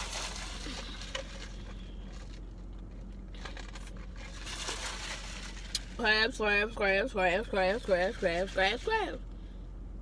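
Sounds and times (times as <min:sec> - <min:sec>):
paper cup handling: 0:00.0 - 0:06.0
steady low hum: 0:00.0 - 0:10.0.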